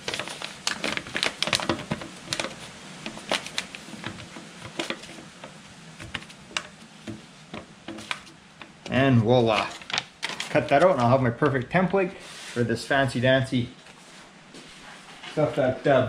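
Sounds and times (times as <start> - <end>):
paper crinkling and rustling: 0.0 - 12.6.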